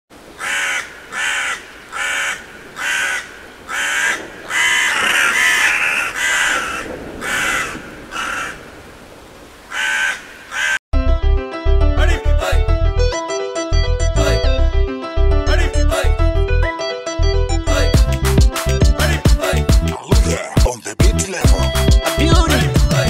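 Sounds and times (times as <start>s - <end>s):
crows cawing: 0.2s - 10.8s.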